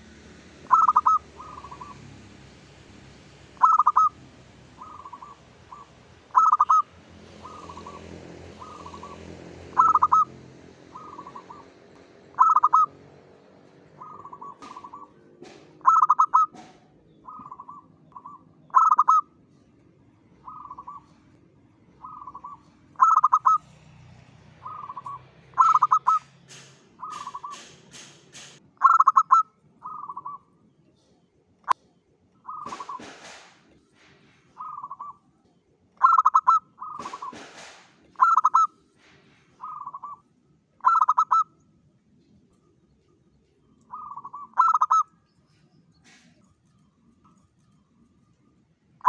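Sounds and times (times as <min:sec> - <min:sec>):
dove cooing: 0:00.6 - 0:02.1, 0:03.6 - 0:13.0, 0:13.8 - 0:19.3, 0:20.4 - 0:21.3, 0:22.0 - 0:23.8, 0:24.6 - 0:27.8, 0:28.8 - 0:30.5, 0:32.4 - 0:33.4, 0:34.5 - 0:35.2, 0:36.0 - 0:37.6, 0:38.2 - 0:38.7, 0:39.6 - 0:40.2, 0:40.8 - 0:41.6, 0:43.9 - 0:45.1
sharp click: 0:26.4 - 0:28.6.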